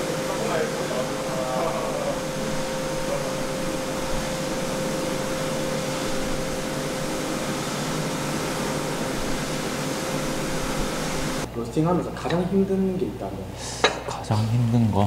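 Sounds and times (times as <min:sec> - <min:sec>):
fans and blowers whirring: 0:00.0 - 0:15.0
steady humming tone: 0:00.0 - 0:15.0.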